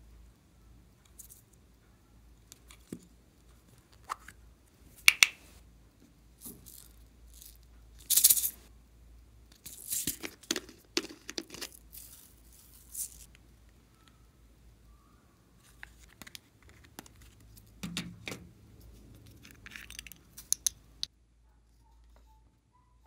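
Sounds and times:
bottle shaking out sequins: 6.4 - 8.6, 9.6 - 13.3
plastic toys clicking and tapping: 9.5 - 12.2, 19.2 - 21.1.

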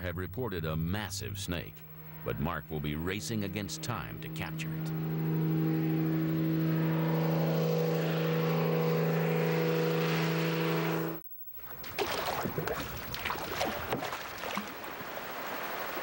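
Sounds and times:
propeller aircraft engine drone: 0.0 - 11.8, 14.6 - 16.0
water splashing and knocking: 11.6 - 16.0.

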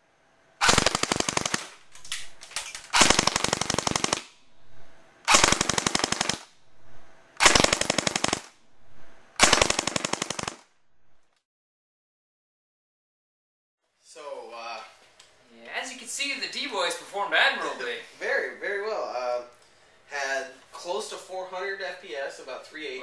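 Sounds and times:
airsoft gun firing full-auto bursts: 0.6 - 4.4, 5.3 - 6.6, 7.4 - 8.6, 9.4 - 10.7.

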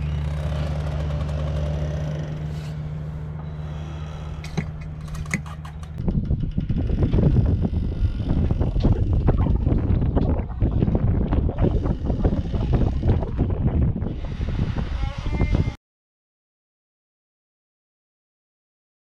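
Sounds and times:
low mechanical hum: 0.0 - 15.8
wind buffeting microphone: 6.0 - 15.8.

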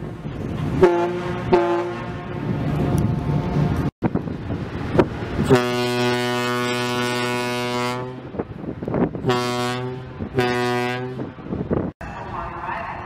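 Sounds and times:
ferry horn blasts: 0.7 - 3.8, 5.4 - 8.4, 9.2 - 11.3.

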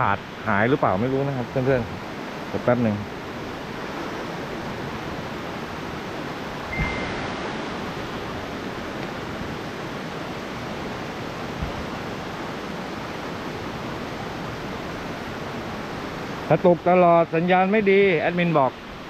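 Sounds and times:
waterfall rushing: 0.0 - 19.0.

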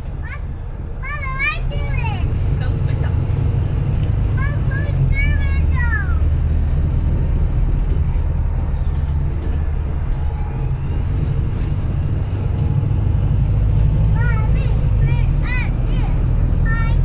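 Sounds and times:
bus engine rumble: 0.0 - 17.0
road noise: 0.0 - 17.0.

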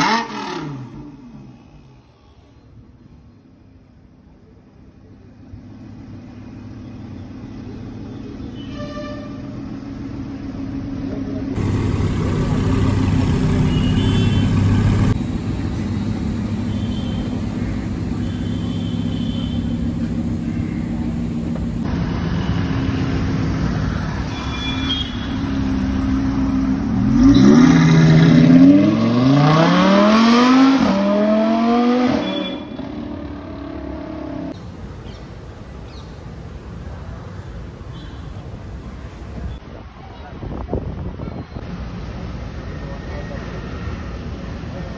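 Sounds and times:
car engine revving and accelerating: 0.0 - 1.4, 26.8 - 34.6.

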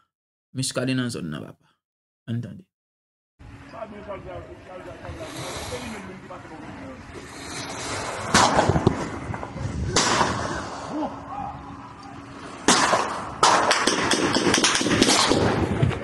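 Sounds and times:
gunshots: 8.2 - 9.1, 9.9 - 10.7, 12.6 - 16.0
rapid gunfire: 8.3 - 9.0, 9.9 - 10.4, 12.7 - 15.8.

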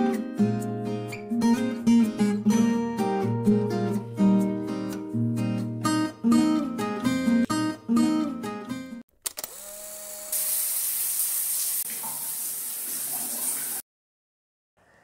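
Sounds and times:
acoustic guitar music: 0.0 - 9.0
shower water running: 9.9 - 13.8.

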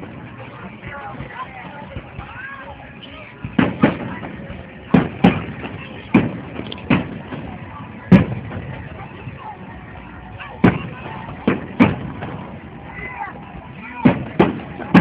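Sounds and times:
fireworks bangs: 3.5 - 8.8, 10.6 - 12.5.

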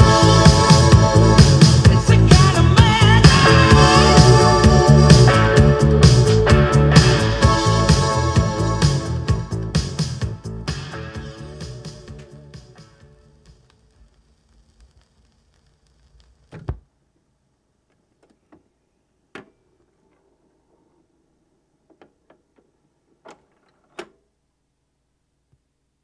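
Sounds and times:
faint hum: 11.0 - 23.4.

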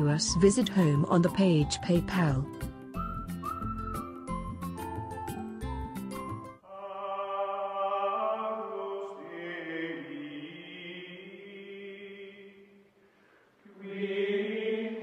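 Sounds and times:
chanting voices with long notes: 6.6 - 13.0, 13.6 - 15.0.

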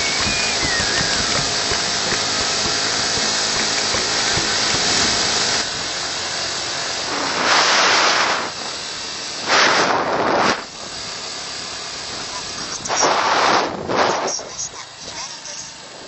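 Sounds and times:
wind noise on microphone: 0.0 - 6.0, 6.7 - 11.2, 12.1 - 15.2
small motorcycle engine: 0.0 - 16.0.

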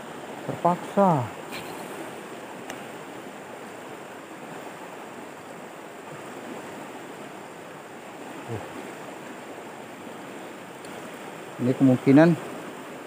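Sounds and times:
river rushing over rocks: 0.0 - 13.0.

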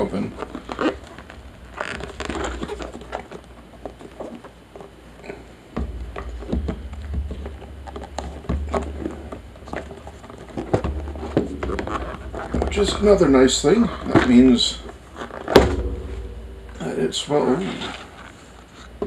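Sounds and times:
cardboard scraping and tapping: 5.8 - 13.4
low rumble: 10.9 - 17.7.

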